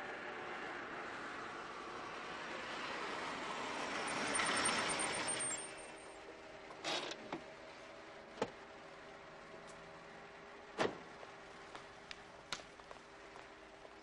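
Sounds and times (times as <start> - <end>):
car driving past: 0.0 - 6.2.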